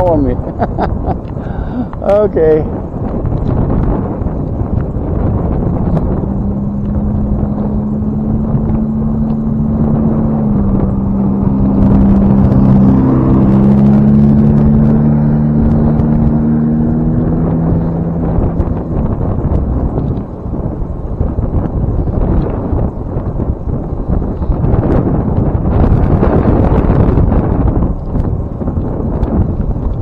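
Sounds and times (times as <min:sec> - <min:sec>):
vehicle engine droning: 0:00.0 - 0:30.0
wind buffeting microphone: 0:00.0 - 0:30.0.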